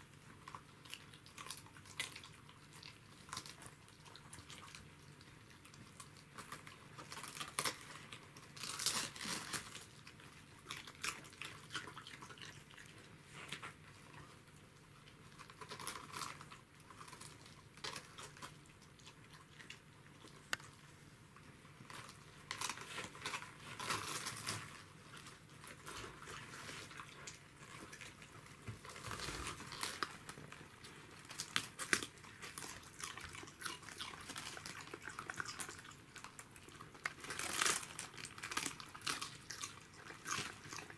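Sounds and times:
dog crunching cabbage leaves: 0.0s - 20.8s, 21.8s - 40.9s.

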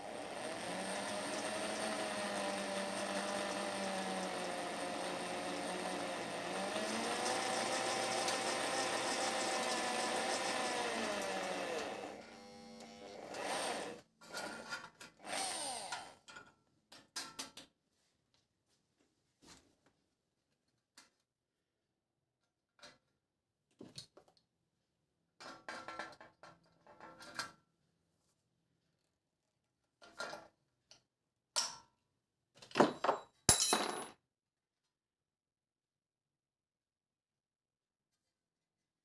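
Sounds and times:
electric drill drilling metal: 0.0s - 14.0s, 15.2s - 16.2s.

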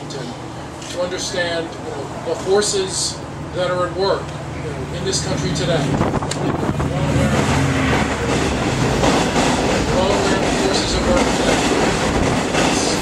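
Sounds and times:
man speaking through a microphone: 0.0s - 7.7s, 9.8s - 11.9s, 12.6s - 13.0s
loud steady rumbling: 0.0s - 13.0s.

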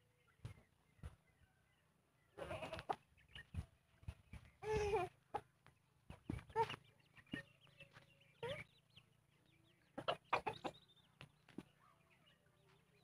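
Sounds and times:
chickens clucking: 2.7s - 3.6s, 4.4s - 7.7s, 9.7s - 11.7s.

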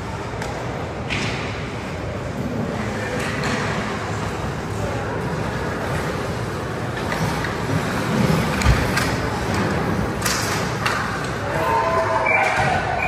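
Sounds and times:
arena ambience: 0.0s - 13.0s.

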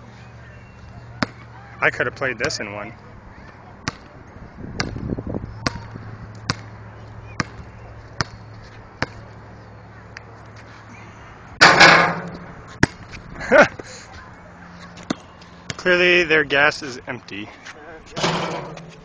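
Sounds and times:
basketball bouncing on court: 7.4s - 8.4s.

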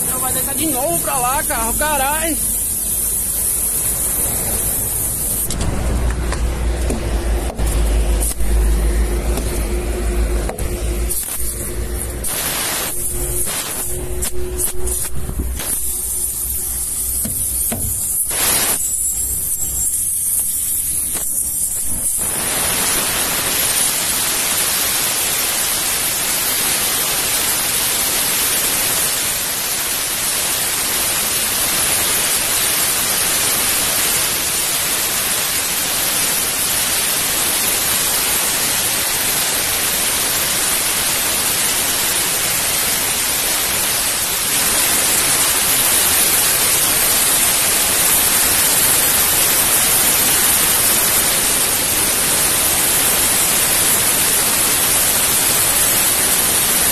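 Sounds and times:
faint high hiss: 0.0s - 24.1s
air hissing from tyre valve: 0.0s - 56.9s.

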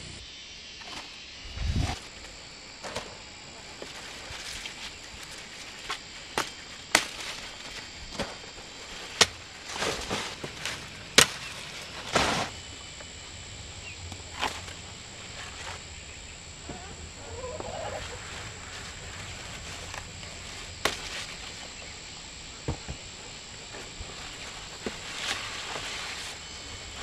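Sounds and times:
leaves rustling: 0.8s - 27.0s
blade chopping stalks: 3.8s - 12.7s, 19.3s - 21.6s.

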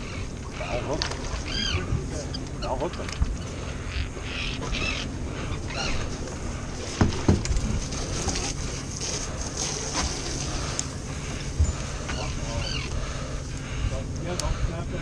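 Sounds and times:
wind and boat rumble: 0.0s - 15.0s
fish knocking against boat deck: 7.0s - 7.7s.

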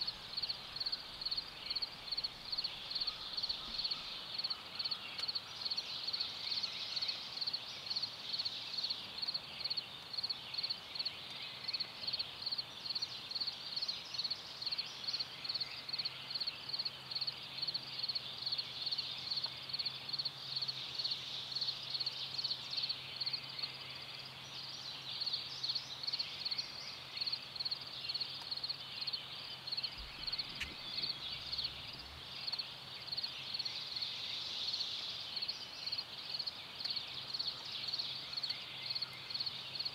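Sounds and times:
faint low hum: 28.4s - 33.9s.

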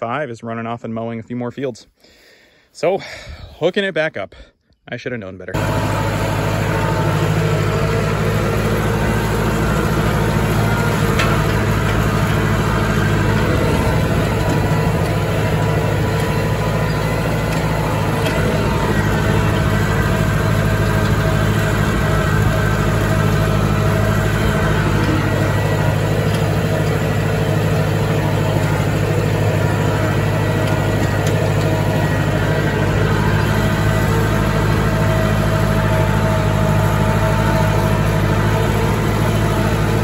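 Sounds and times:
diesel tractor engine running: 5.5s - 40.0s.

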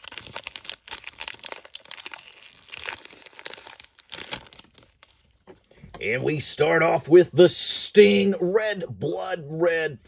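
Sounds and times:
foil wrapper crinkling and tearing: 0.0s - 5.7s.

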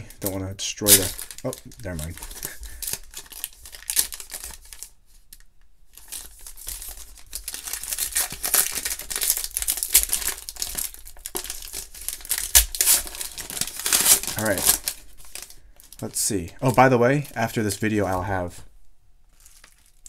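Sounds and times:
foil pack crinkling: 0.0s - 18.5s, 19.3s - 20.0s.

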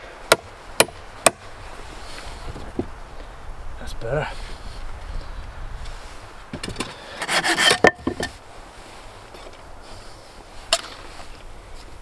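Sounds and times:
hand scraping and rubbing: 7.1s - 11.9s.

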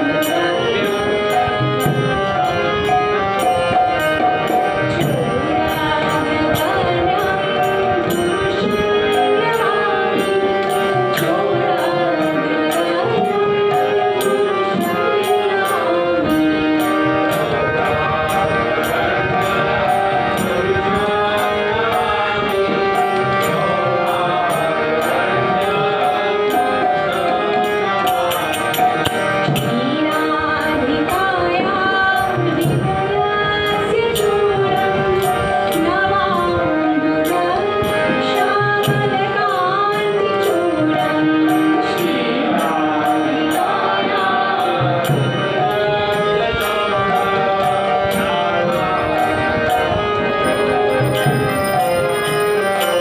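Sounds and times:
sustained instrumental accompaniment: 0.0s - 53.0s
woman singing a hymn: 5.0s - 16.7s, 29.7s - 45.0s
steady percussion beat: 27.7s - 30.5s, 49.0s - 53.0s.

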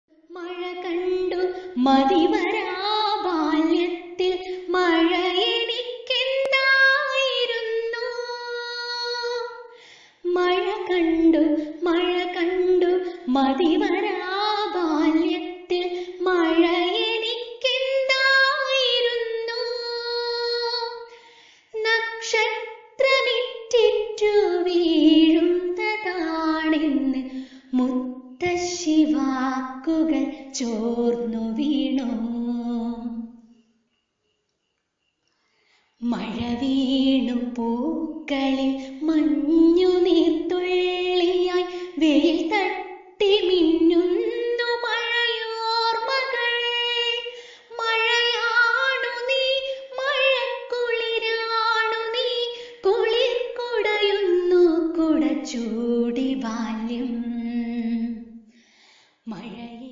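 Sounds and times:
woman singing unaccompanied: 0.0s - 21.1s, 21.8s - 33.4s, 36.0s - 58.4s, 59.2s - 59.9s
woman breathing: 9.7s - 10.2s, 21.1s - 21.8s, 27.3s - 27.7s, 35.3s - 36.0s, 47.3s - 47.7s, 58.4s - 59.3s.

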